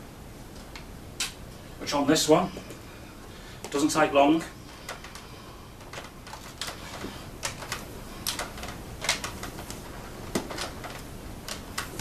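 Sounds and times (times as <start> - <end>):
cable tapping plastic vacuum body: 5.8 - 12.0.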